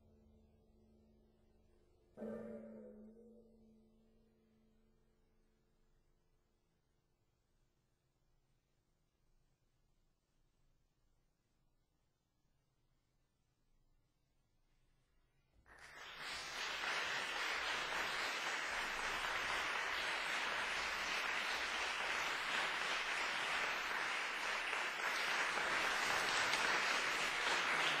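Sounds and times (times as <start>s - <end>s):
audience applauding: 15.7s - 28.0s.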